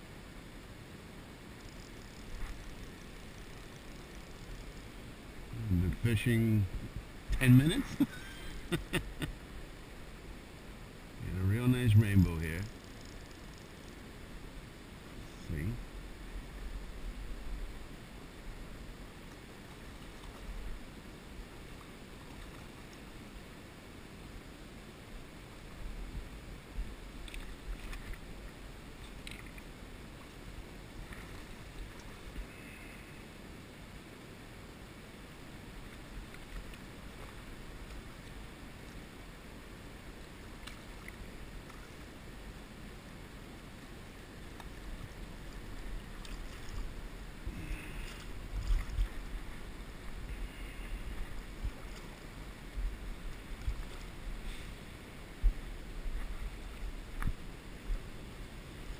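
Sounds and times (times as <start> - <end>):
river water flowing and lapping: 0.0 - 58.9
faint high-pitched ticks: 1.5 - 5.0, 12.0 - 14.0.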